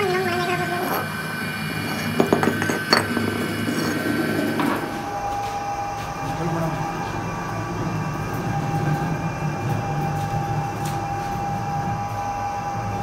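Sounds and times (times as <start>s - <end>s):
steady background hum: 0.0s - 13.0s.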